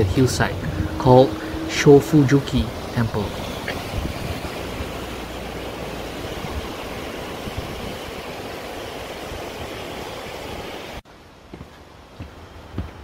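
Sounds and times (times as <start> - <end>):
low rumble: 0.0 - 5.8
rocky stream rushing: 0.0 - 11.4.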